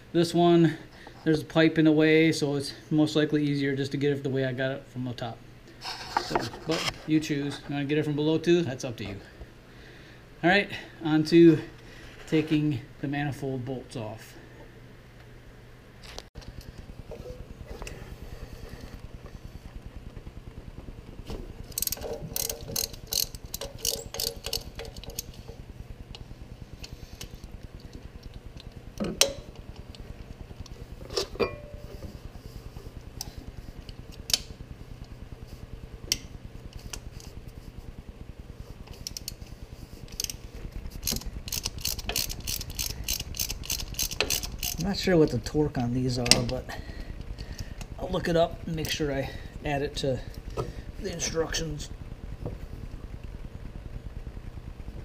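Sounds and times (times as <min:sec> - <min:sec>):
hand ratchet clicking: 0:21.7 - 0:25.4, 0:40.1 - 0:40.4, 0:41.0 - 0:44.9.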